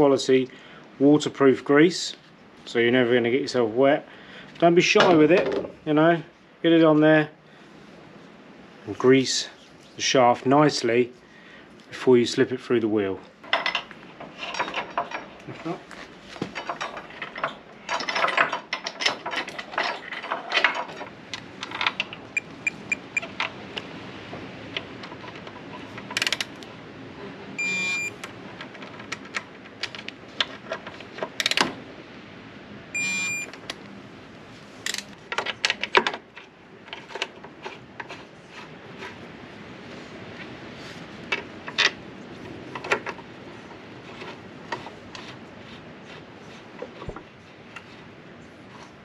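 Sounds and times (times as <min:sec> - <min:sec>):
torque wrench beeping: 0:22.4 - 0:23.3, 0:27.6 - 0:28.2, 0:33.0 - 0:33.5
metallic clicks of tools: 0:26.0 - 0:26.6, 0:31.4 - 0:31.7, 0:34.8 - 0:36.0.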